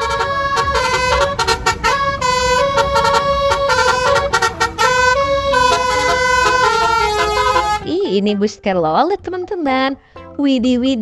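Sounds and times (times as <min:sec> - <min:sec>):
bus horn playing a tune: 0:00.0 - 0:08.1
low rumble: 0:00.0 - 0:08.2.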